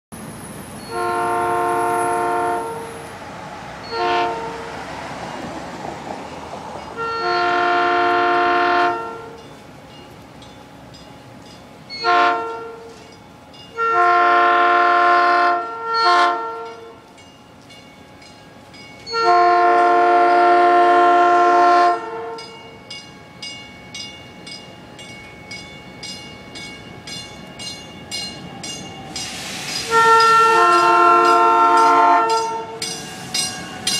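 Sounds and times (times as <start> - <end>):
train horn blasts: 0.8 - 3.1, 3.8 - 4.8, 7.0 - 9.4, 12.0 - 13.0, 13.7 - 17.0, 19.1 - 22.6, 29.4 - 33.9
bell ringing: 22.4 - 29.4, 30.2 - 33.9.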